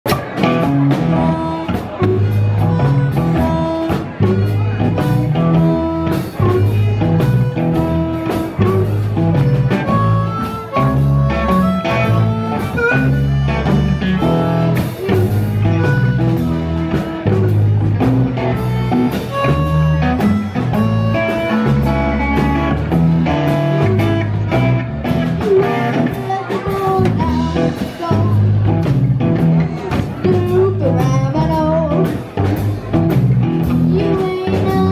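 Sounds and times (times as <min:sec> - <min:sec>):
live blues band: 0:00.0 - 0:34.9
harmonica: 0:00.9 - 0:28.4.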